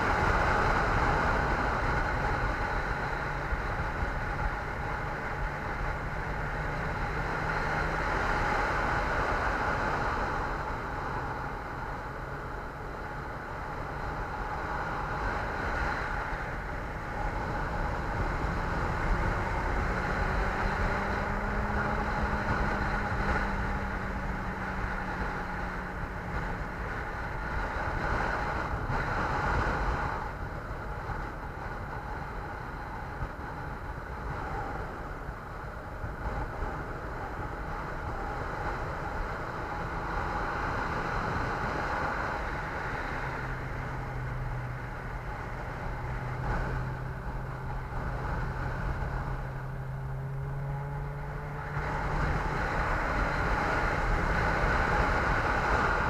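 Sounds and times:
vehicle road noise: 0.0s - 56.0s
wind rush: 0.0s - 56.0s.

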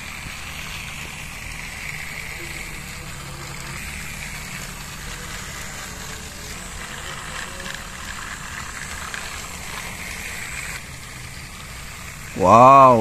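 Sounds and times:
toy trains whirring: 0.0s - 13.0s.

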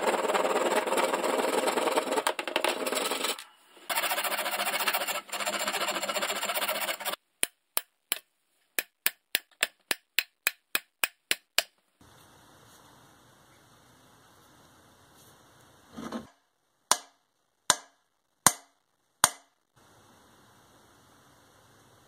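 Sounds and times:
file rasping wood: 0.0s - 7.2s
hand saw cutting wood: 0.0s - 7.2s
hammer tapping metal wedge: 16.9s - 19.5s.

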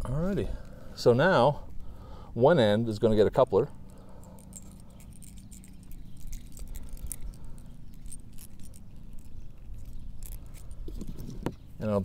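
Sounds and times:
brass coupler clicking and scraping: 3.8s - 11.6s.

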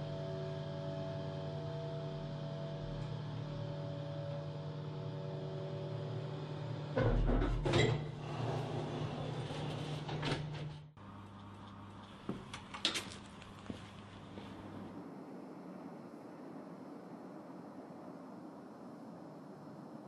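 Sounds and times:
elevator machine hum: 0.0s - 15.0s
sliding doors opening: 7.0s - 10.9s.

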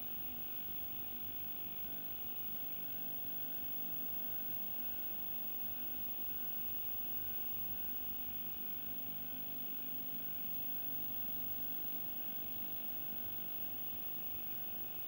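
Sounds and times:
electrical hum and hiss: 0.0s - 15.0s.

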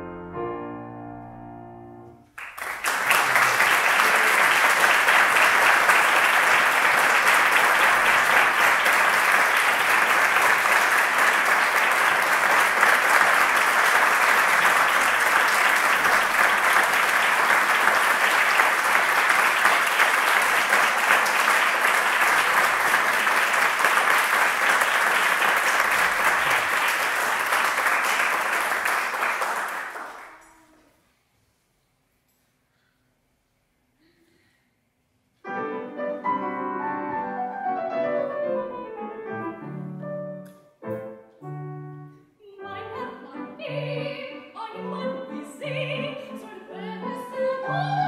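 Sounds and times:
audience applauding: 2.3s - 30.8s.

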